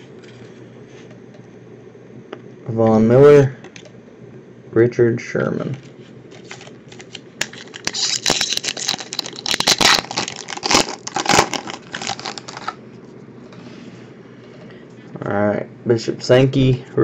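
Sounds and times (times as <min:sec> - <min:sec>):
foil wrapper tearing and crinkling: 0:06.4 - 0:12.8.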